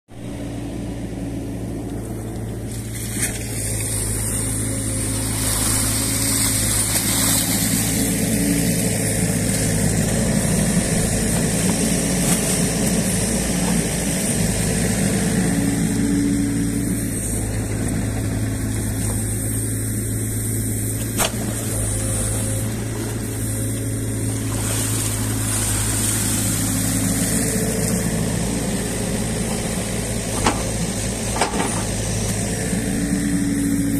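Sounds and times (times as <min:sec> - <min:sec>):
excavator diesel engine running: 0:00.1 - 0:33.9
hydraulics working: 0:00.1 - 0:33.9.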